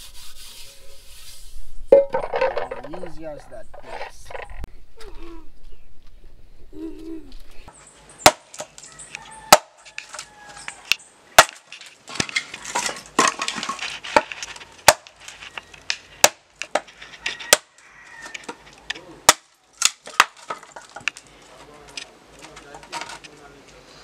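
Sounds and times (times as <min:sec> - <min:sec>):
wood splintering and scraping: 0:07.7 - 0:23.8
machete chopping log: 0:08.2 - 0:08.8, 0:09.5 - 0:09.8, 0:11.4 - 0:15.2, 0:16.2 - 0:16.9, 0:17.5 - 0:17.7, 0:19.2 - 0:20.6.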